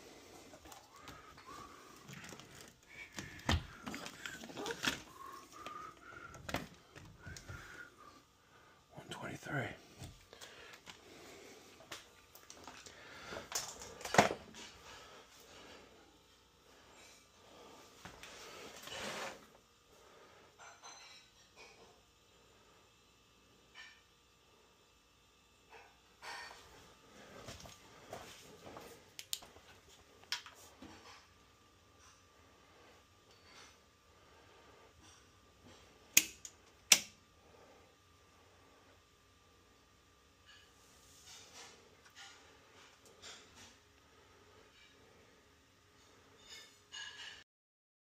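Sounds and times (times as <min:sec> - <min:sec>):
rustling and shuffling: 0:26.5 - 0:31.0.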